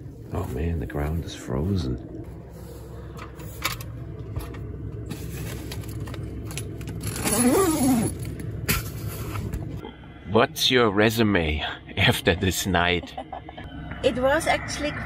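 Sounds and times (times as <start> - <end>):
diesel air heater humming: 0.0 - 15.0.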